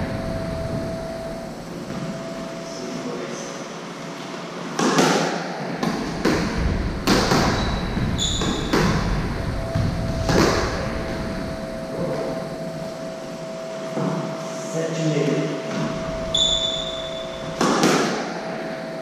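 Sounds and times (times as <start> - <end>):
squash ball smacks: 4.8 - 7.7, 8.3 - 9.1, 17.6 - 18.3
sneaker squeaks on wooden floor: 7.2 - 10.9, 15.8 - 17.9.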